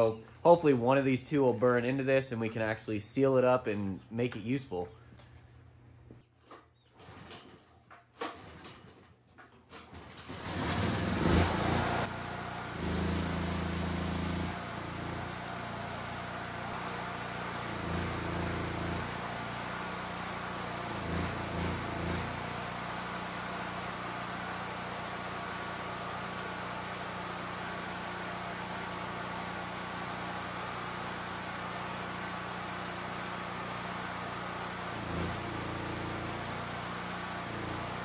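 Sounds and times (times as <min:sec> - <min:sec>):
generator pull-start: 0:06.4 - 0:22.8
generator engine running: 0:09.4 - 0:38.0.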